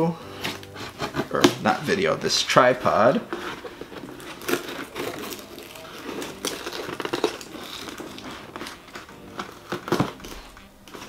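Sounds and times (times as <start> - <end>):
cardboard box scraping and crinkling: 0.3 - 11.0.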